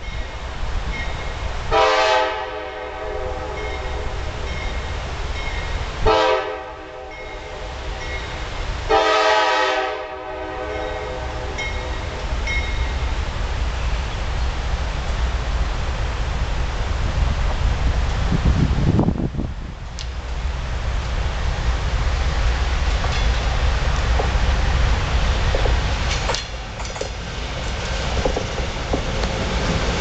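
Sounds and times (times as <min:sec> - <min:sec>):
low locomotive rumble: 0:00.0 - 0:30.0
train horn blasts: 0:01.7 - 0:04.3, 0:06.0 - 0:08.0, 0:08.9 - 0:12.2.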